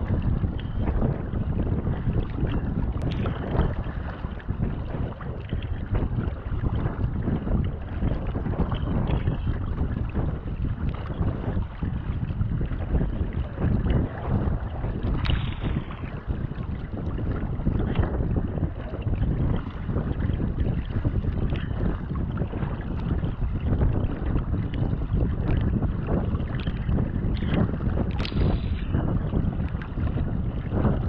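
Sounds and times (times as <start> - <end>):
water splashing around kayak: 0.0 - 31.0
wind buffeting microphone: 0.0 - 31.0
paddle blades dipping in water: 2.0 - 19.9, 26.4 - 30.7.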